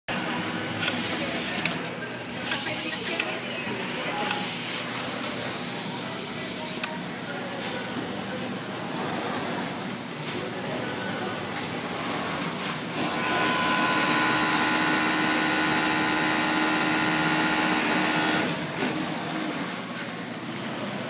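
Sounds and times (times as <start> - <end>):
sewing machinery humming: 11.8 - 19.8.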